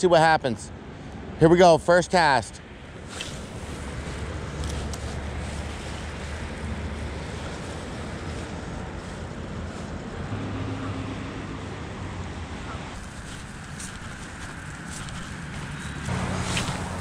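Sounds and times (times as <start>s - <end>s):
road traffic drone: 0.0s - 17.0s
wind hiss: 2.9s - 10.2s.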